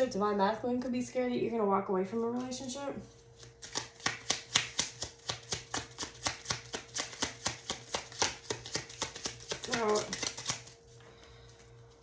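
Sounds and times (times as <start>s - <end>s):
cards being shuffled: 2.2s - 11.0s.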